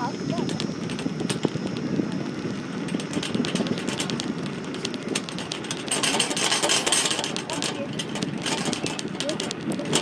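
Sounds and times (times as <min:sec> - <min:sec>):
scooter engine and road noise: 0:00.0 - 0:10.0
metal rack and basket rattling: 0:05.5 - 0:10.0.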